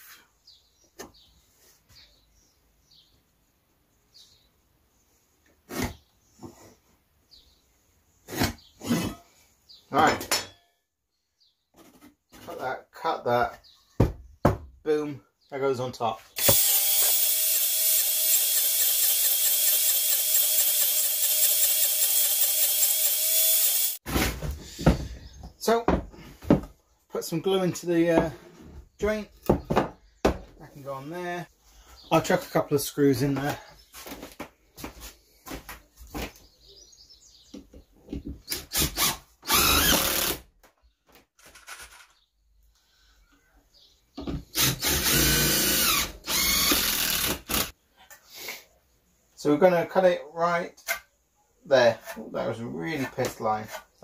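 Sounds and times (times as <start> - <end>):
impact driver driving a screw: 16.4 - 24.0, 38.5 - 40.4, 44.5 - 47.7
table saw cutting wood: 16.4 - 24.0.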